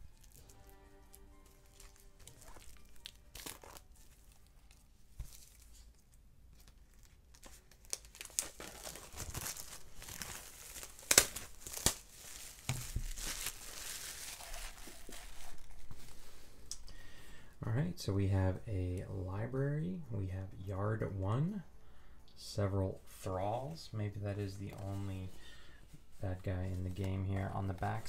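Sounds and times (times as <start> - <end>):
plastic wrapping tearing and crinkling: 0.0 - 16.2.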